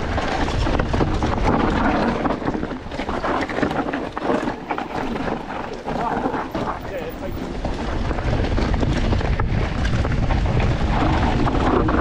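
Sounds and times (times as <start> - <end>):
bike rattling clicks and knocks: 0.0 - 12.0
bike tyre noise: 0.0 - 12.0
wind rumbling on microphone: 0.0 - 12.0.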